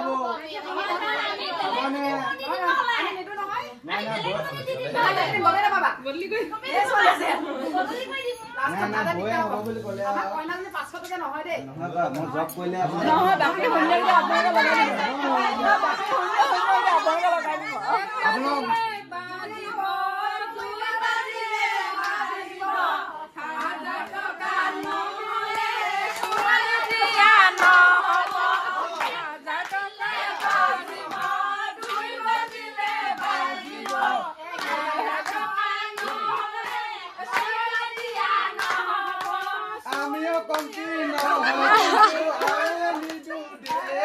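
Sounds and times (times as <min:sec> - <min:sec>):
group of voices singing: 0:00.0 - 0:03.0, 0:12.8 - 0:44.0
hand clapping: 0:24.8 - 0:44.0.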